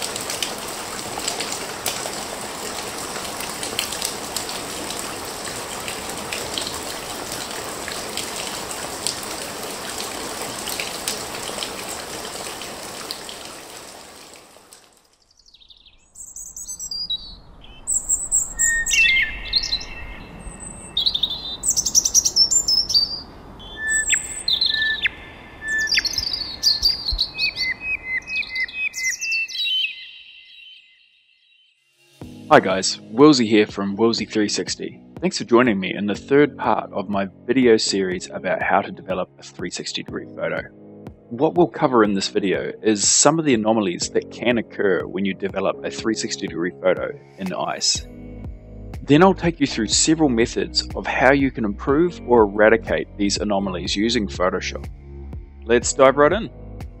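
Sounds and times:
rushing noise like running water: 0:00.0 - 0:15.1
birds chirping and calling: 0:15.4 - 0:31.2.

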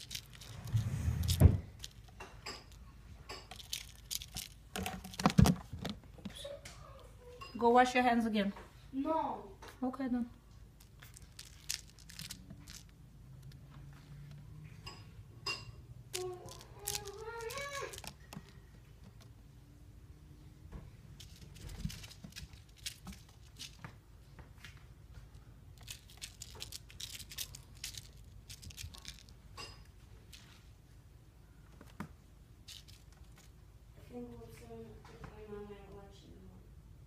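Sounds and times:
kitten claws scratching: 0:00.0 - 0:02.8, 0:03.4 - 0:06.0, 0:10.8 - 0:13.6, 0:16.2 - 0:19.4, 0:21.2 - 0:23.8, 0:25.8 - 0:29.4, 0:32.7 - 0:33.5.

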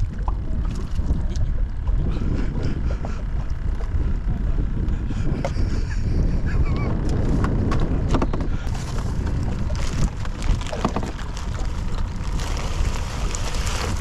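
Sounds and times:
wind buffeting the microphone: 0:00.0 - 0:14.0
plastic bag rustling: 0:08.7 - 0:14.0.

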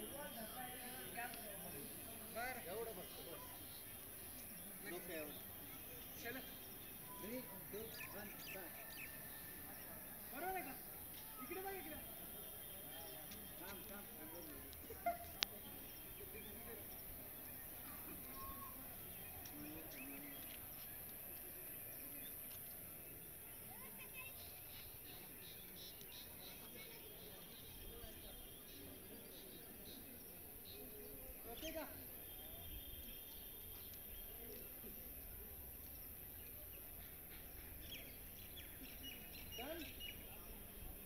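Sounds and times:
faint bird chirps: 0:11.2 - 0:22.4.

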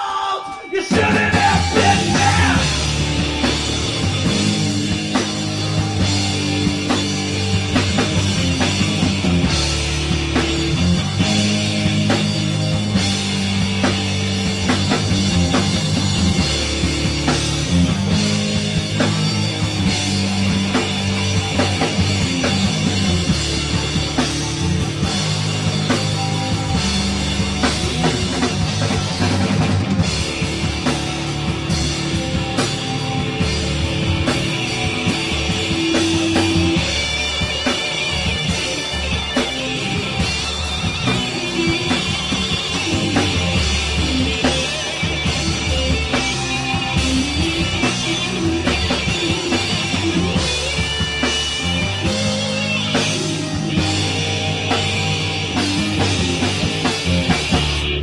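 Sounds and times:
drum kit beat: 0:00.0 - 0:58.0
electric guitar: 0:00.0 - 0:58.0.

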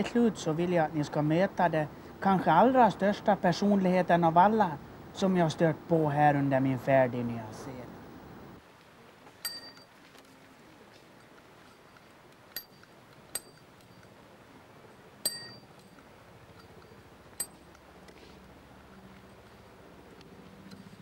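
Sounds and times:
bicycle bell dings: 0:09.4 - 0:09.9, 0:13.4 - 0:13.6, 0:15.2 - 0:15.7.

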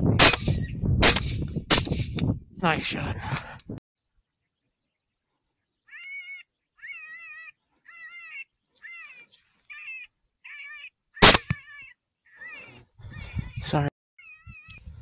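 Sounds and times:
rifle shot: 0:00.2 - 0:02.2, 0:11.2 - 0:11.6.

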